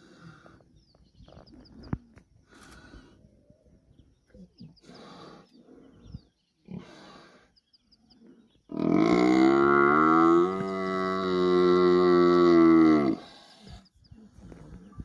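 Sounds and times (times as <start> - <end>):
rough grunting breaths: 4.8 - 7.6
buffalo bellowing: 8.7 - 13.2.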